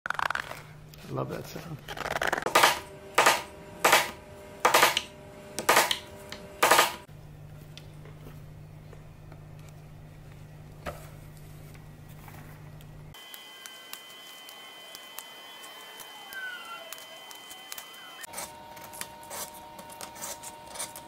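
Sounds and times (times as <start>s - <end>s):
low steady hum: 0.1s - 13.4s.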